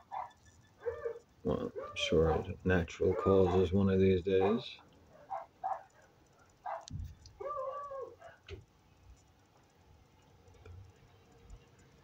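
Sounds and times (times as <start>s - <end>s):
dog barking: 0.0s - 3.8s, 4.4s - 6.0s, 6.6s - 8.4s
dog whining: 7.4s - 8.4s.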